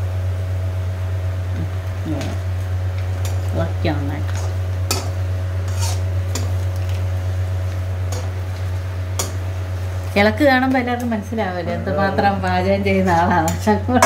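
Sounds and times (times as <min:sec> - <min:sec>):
steady low hum: 0:00.0 - 0:14.0
spatula scraping a metal wok: 0:04.4 - 0:06.5.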